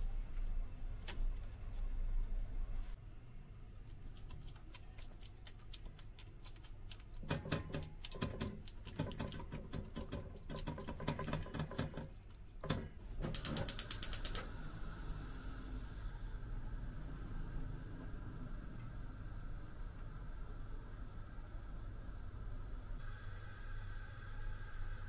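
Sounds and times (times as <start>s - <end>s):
gas hob igniter clicking: 11.4s - 14.6s
gas burner hissing: 12.7s - 25.0s.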